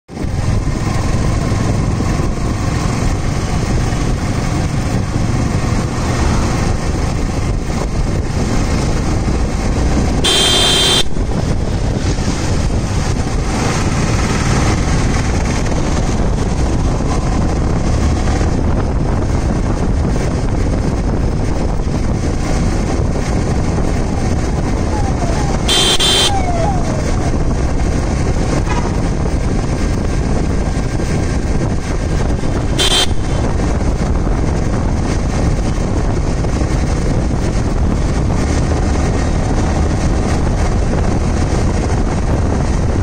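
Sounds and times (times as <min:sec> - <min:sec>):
motorcycle engine running: 0:00.1 - 0:43.0
traffic: 0:00.1 - 0:43.0
wind noise: 0:00.1 - 0:43.0
horn blast: 0:10.2 - 0:11.2, 0:24.9 - 0:27.2, 0:32.8 - 0:33.6.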